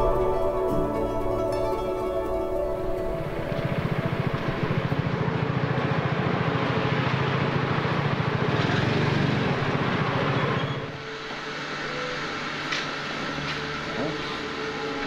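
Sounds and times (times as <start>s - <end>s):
small motorbike engine running: 3.7s - 10.9s.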